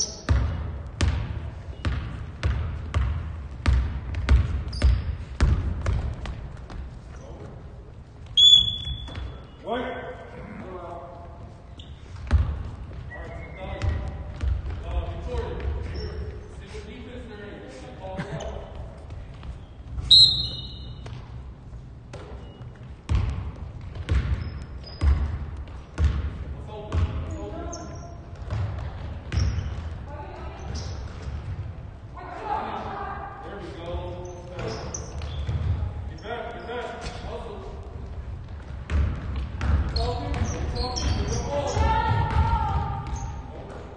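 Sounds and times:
basketball bouncing on wooden floor: 0.2 - 7.0, 12.1 - 13.1, 13.8 - 16.0, 20.7 - 21.4, 22.0 - 27.4, 28.2 - 31.8, 34.6 - 36.0, 38.1 - 43.4
referee's whistle blast: 8.4 - 9.2, 20.1 - 20.9.

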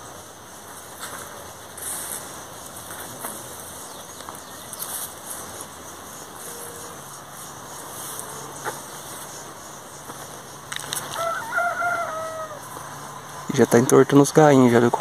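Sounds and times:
background hiss: 0.0 - 15.0
rooster crowing: 10.8 - 13.5.

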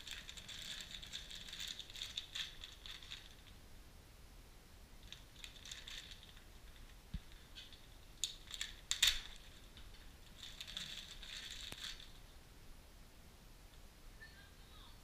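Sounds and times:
plastic bags crinkling: 0.0 - 3.6, 5.0 - 12.3.

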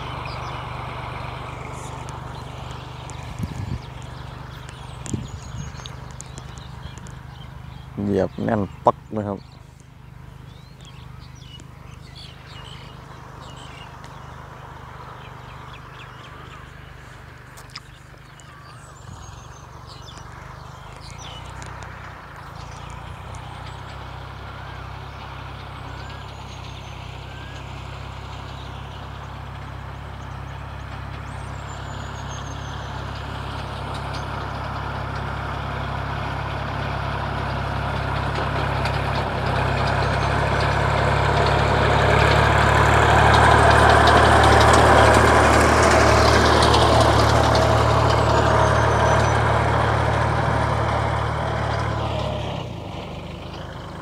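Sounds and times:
bird chirps: 0.0 - 34.6
tractor engine running: 0.0 - 54.0.

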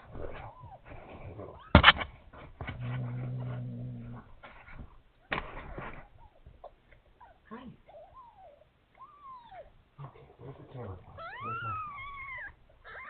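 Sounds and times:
kittens mewing: 0.0 - 2.1, 5.2 - 13.0
low steady hum: 0.0 - 13.0.

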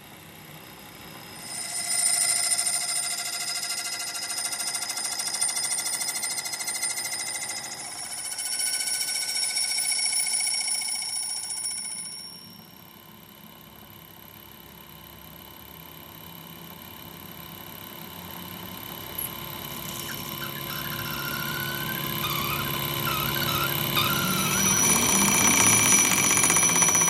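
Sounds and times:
lathe tool squealing on steel: 1.2 - 12.0, 19.2 - 27.0.

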